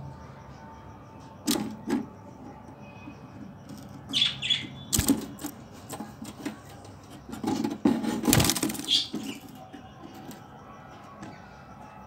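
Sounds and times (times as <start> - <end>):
budgerigar chirps: 4.1 - 5.0, 8.7 - 9.4.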